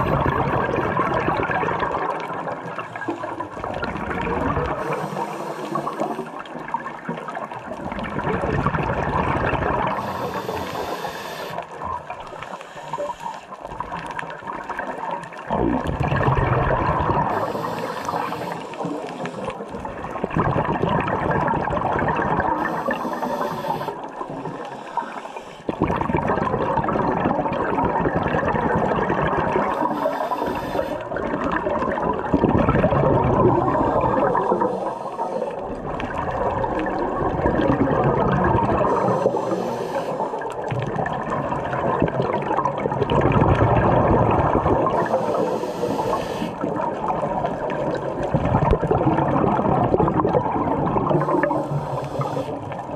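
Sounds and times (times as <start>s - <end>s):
exhaled bubbles gurgling: 0.0s - 52.9s
regulator inhale hiss: 4.8s - 6.6s, 9.9s - 13.6s, 17.2s - 19.7s, 22.6s - 25.8s, 29.6s - 31.2s, 33.7s - 35.7s, 38.8s - 40.6s, 44.9s - 46.7s, 51.1s - 52.9s.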